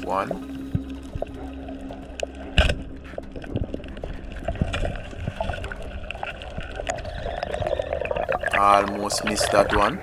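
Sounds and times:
crackling clicks: 0:00.5 - 0:10.0.

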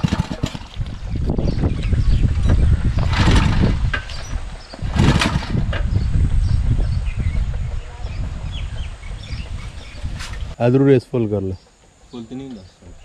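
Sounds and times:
small petrol engine running: 0:00.0 - 0:07.6.

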